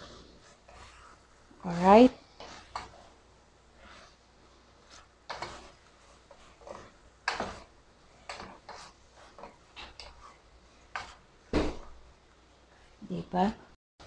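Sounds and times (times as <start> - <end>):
spatula scraping and tapping a pot: 0.4 - 3.2, 4.8 - 11.2.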